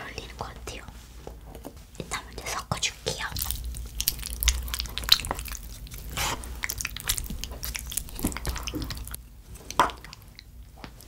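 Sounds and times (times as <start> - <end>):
chopsticks stirring sticky food: 3.0 - 11.0.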